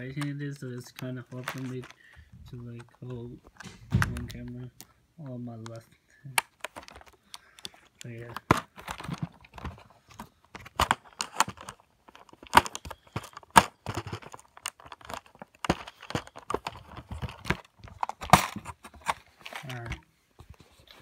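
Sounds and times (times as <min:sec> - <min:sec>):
phone handling clicks and knocks: 0:02.6 - 0:04.9.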